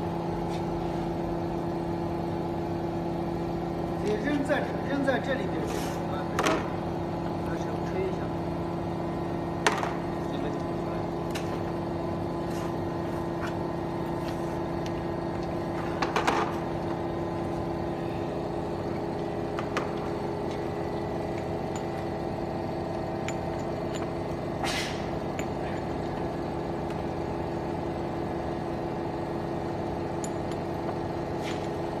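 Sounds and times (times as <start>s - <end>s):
machine hum: 6.3s - 32.0s.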